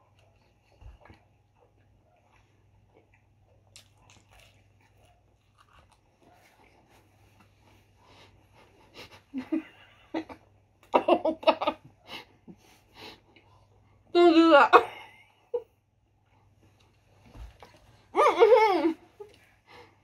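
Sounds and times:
people chewing with wet clicks: 0.0 - 7.5.

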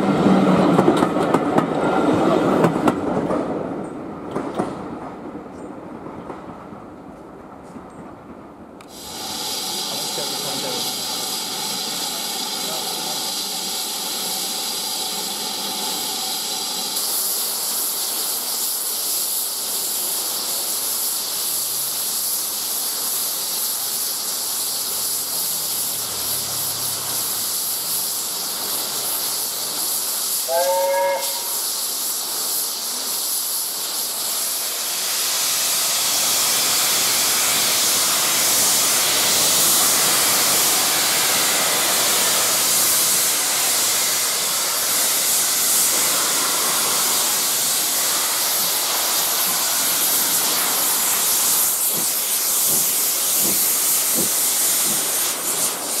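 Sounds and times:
steam locomotive hissing: 0.0 - 3.6, 8.8 - 56.0
train whistle toot: 30.4 - 31.7.

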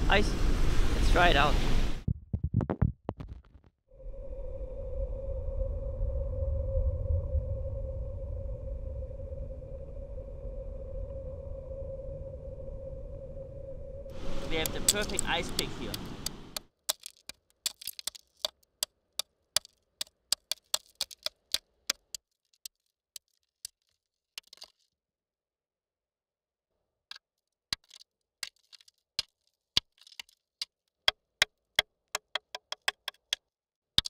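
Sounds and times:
stone tapping on ice underwater: 14.6 - 24.8, 27.1 - 33.4.

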